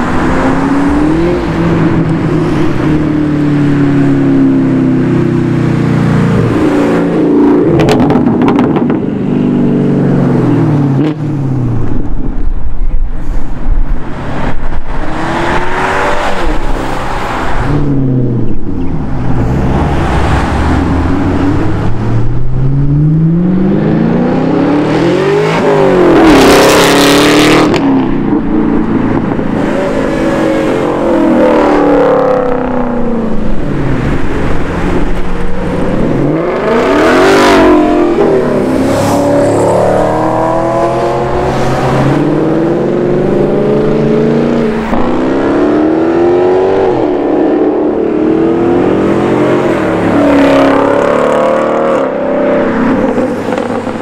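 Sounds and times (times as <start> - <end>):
sports cars accelerating past: 19.0 - 28.1, 33.8 - 54.0.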